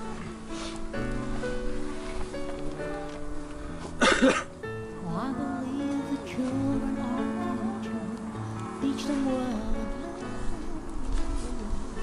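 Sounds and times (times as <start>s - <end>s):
song with acoustic guitar: 0.0s - 12.0s.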